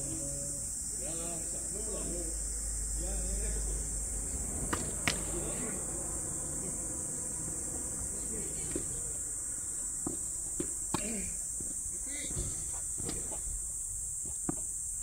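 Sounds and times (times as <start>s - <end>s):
insects buzzing: 0.0s - 15.0s
tennis balls struck by rackets: 4.6s - 5.7s, 10.0s - 11.7s.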